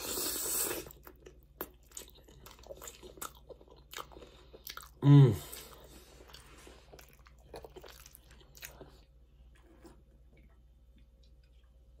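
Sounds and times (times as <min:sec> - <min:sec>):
chewing crunchy chips: 0:00.7 - 0:09.1.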